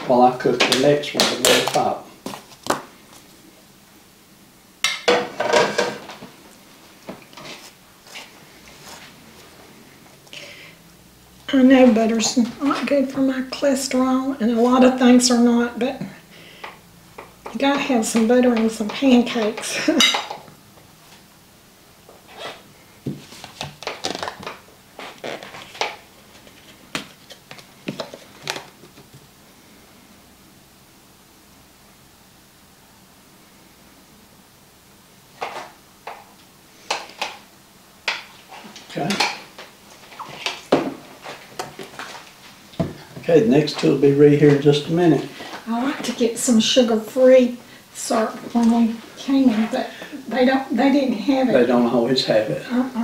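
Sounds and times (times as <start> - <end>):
plates and utensils clinking: 4.8 - 6.2, 18.6 - 20.5.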